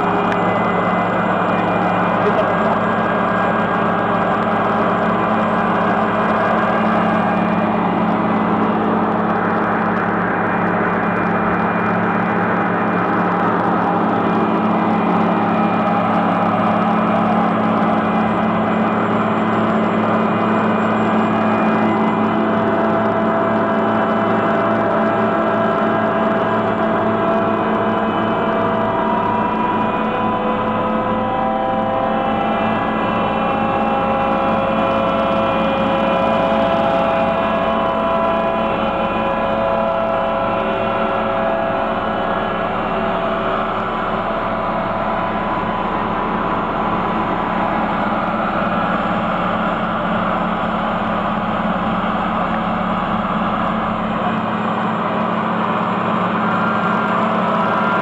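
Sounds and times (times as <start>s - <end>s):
diesel engine droning: 0.0s - 58.0s.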